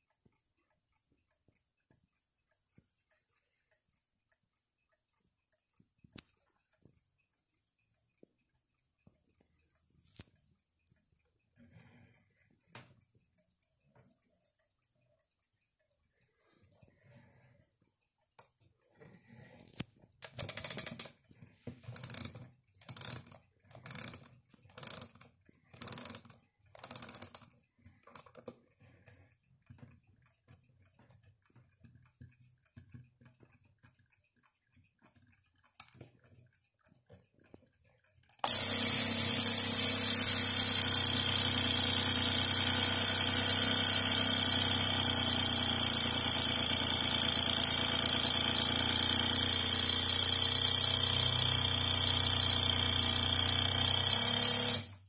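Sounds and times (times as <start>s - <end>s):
clock ticking: 0.0s - 55.0s
alarm clock key ratcheting: 19.6s - 55.0s
alarm bell ringing: 38.4s - 55.0s.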